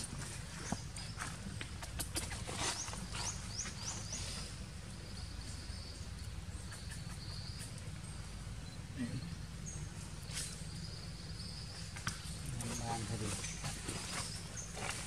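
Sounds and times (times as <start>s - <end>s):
bird chirping: 0.0s - 15.0s.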